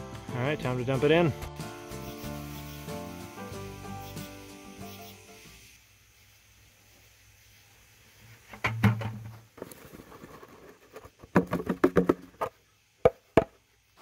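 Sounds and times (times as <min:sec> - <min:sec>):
knocks and clanks: 0:08.5 - 0:09.4.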